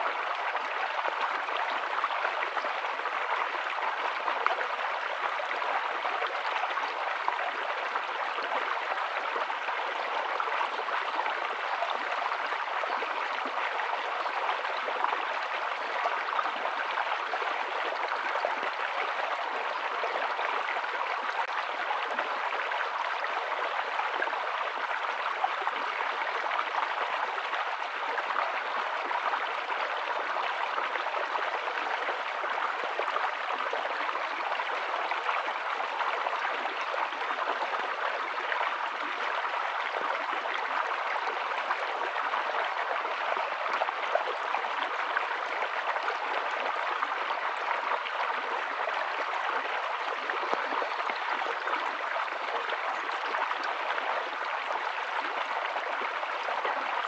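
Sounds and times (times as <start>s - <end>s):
stream babbling over stones: 0.0s - 57.0s.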